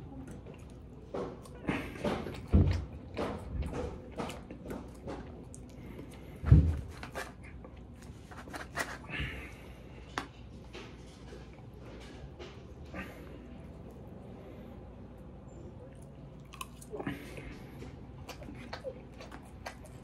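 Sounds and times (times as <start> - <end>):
chewing and mouth sounds: 0.0 - 9.1, 15.9 - 20.0
plastic fork scraping foam container: 8.2 - 9.1.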